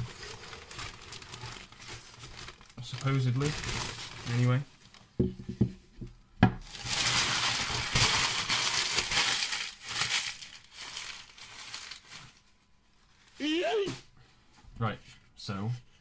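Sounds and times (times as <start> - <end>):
packing paper crackling rustle: 0.0 - 5.1, 6.6 - 13.9.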